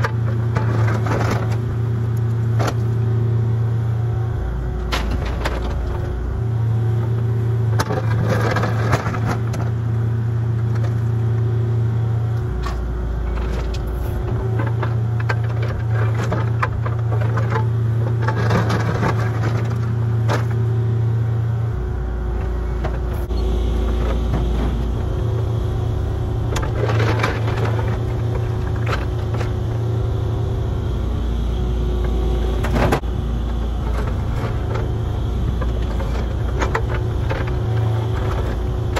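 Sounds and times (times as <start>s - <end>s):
digger engine running under load: 0.0s - 38.9s
bucket scraping soil and stones: 26.4s - 29.9s.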